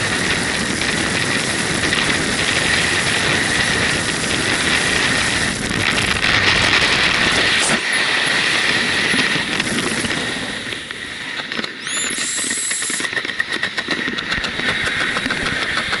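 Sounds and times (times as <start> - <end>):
crackling flutter: 0.0 - 16.0
deep rumble: 0.0 - 16.0
wind rushing over microphone: 0.0 - 16.0
rising squeal: 11.8 - 13.0.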